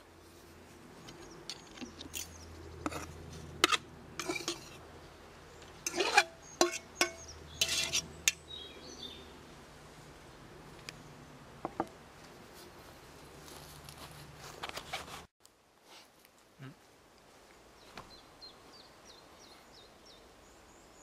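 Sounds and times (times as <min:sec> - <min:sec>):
metal pot clinking and knocking: 0:05.9 - 0:08.4.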